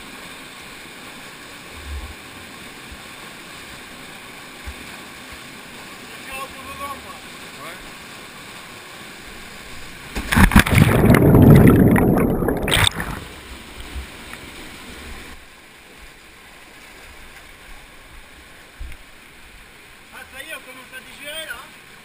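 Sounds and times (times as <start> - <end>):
splashing and churning water: 0.0 - 20.0
waterfall rushing: 10.3 - 13.3.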